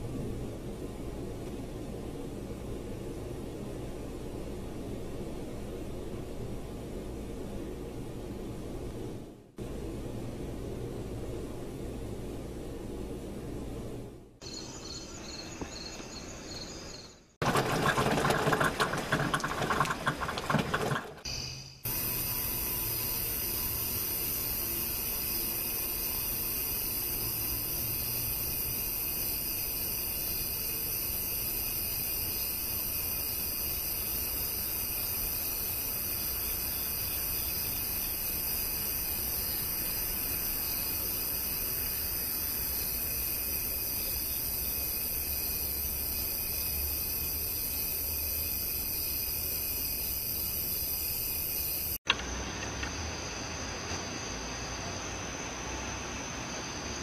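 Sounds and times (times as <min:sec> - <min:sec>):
faint low rumble: 0:00.0 - 0:16.2
high-pitched hiss: 0:21.3 - 0:57.0.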